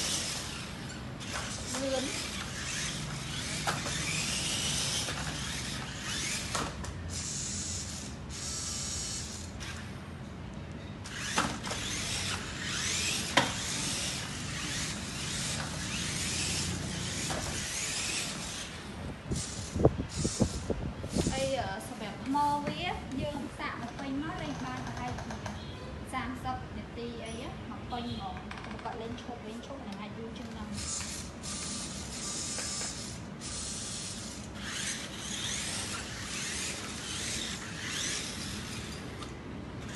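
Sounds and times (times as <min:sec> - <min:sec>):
toy car motor whirring: 0:00.0 - 0:09.9, 0:11.0 - 0:21.5, 0:30.7 - 0:39.9.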